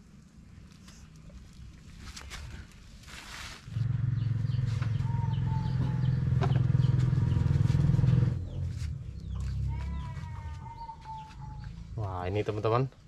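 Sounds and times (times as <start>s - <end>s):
low pulsing motor rumble: 3.7s - 10.8s.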